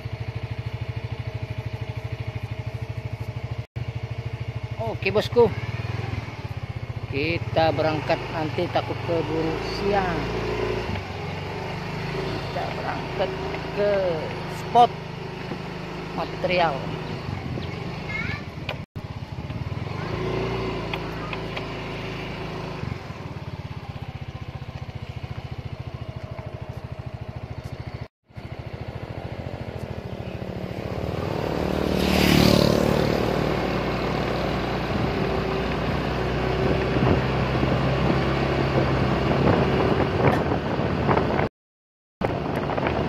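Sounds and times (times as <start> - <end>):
motorcycle engine running: 0.0 - 41.5, 42.2 - 43.0
wind on microphone: 17.0 - 18.7, 36.6 - 41.5, 42.2 - 43.0.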